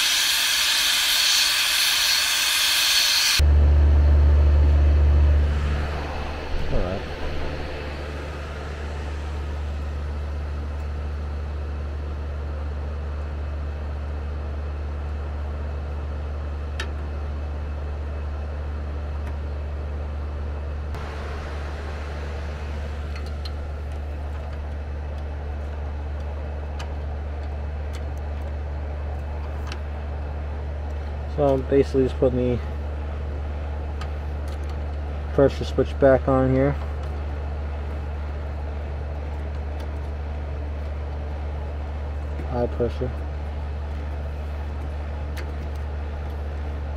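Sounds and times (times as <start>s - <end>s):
low mechanical hum: 0.0s - 46.9s.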